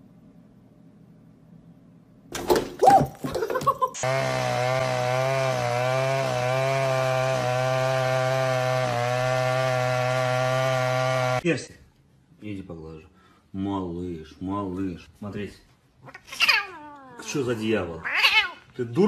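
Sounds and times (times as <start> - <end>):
chainsaw buzzing drone: 4.0 - 11.4.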